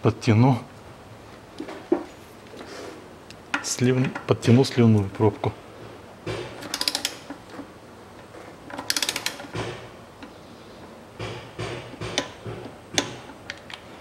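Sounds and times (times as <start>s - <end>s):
socket ratchet clicking: 6.6s - 7.4s, 8.7s - 9.8s
dull tool knocks: 11.2s - 13.3s.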